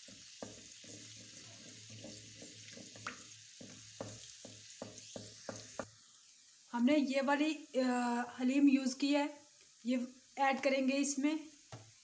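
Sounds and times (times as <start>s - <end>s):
wooden spoon scraping clay pot: 0.0s - 5.9s
paste sizzling in hot oil: 0.0s - 12.0s.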